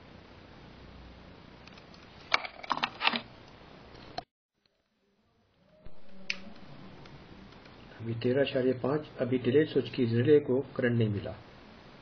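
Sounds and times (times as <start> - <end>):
faint steady hiss: 3.4 - 12.0.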